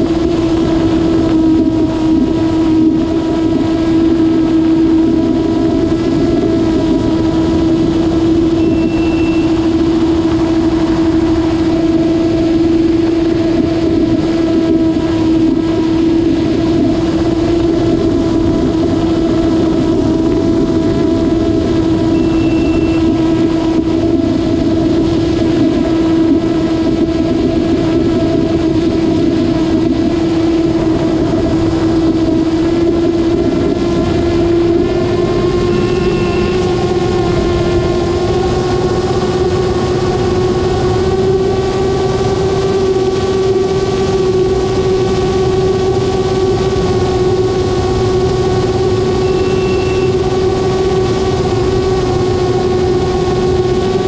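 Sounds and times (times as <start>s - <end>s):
propeller aircraft engine drone: 0.0s - 54.0s
short high beeps: 8.6s - 9.6s, 22.1s - 23.2s, 49.2s - 50.2s.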